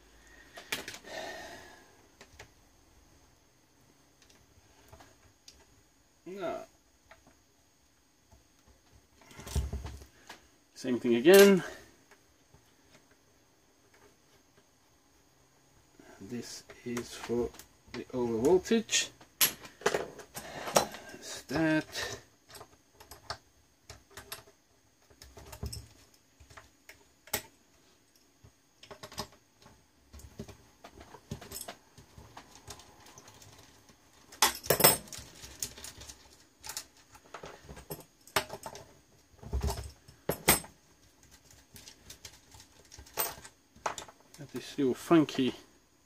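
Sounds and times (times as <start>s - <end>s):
metal parts and tools clattering: 30.2s - 44.3s.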